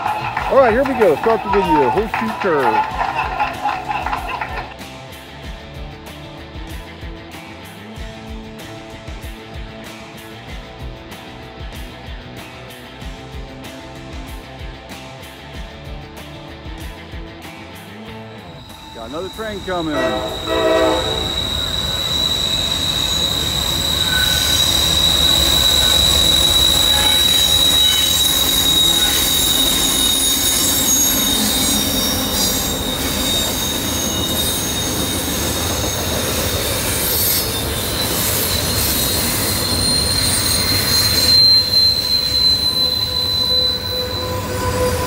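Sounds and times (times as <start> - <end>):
train wheels squealing: 0.0 - 4.7, 18.4 - 45.0
train cars rumbling: 0.0 - 4.8, 18.4 - 45.0.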